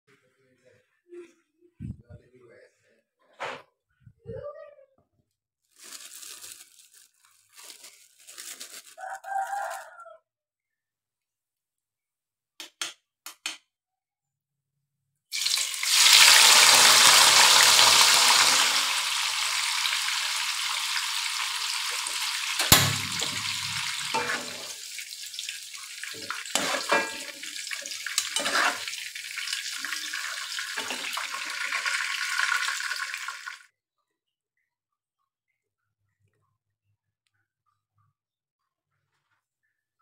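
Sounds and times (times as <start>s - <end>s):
food sizzling in hot oil: 15.3s - 33.6s
sharp knock: 22.6s - 23.4s.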